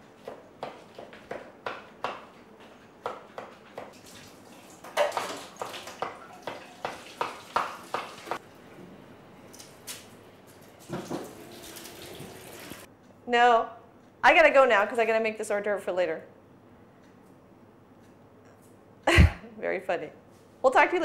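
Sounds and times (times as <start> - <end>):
knife chopping on wooden board: 0.2 - 2.3, 3.0 - 4.0, 5.0 - 8.4.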